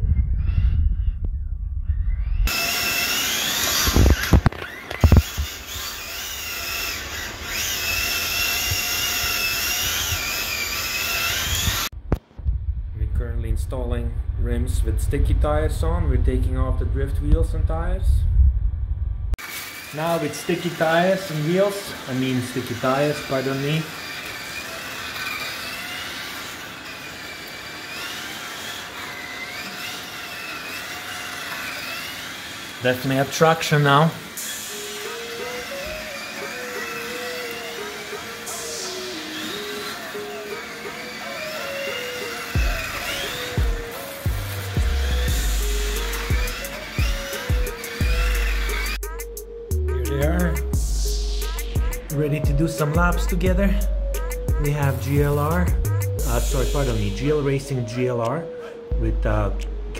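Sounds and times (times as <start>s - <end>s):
toy car electric motor whining: 2.1s - 12.0s, 19.4s - 49.2s.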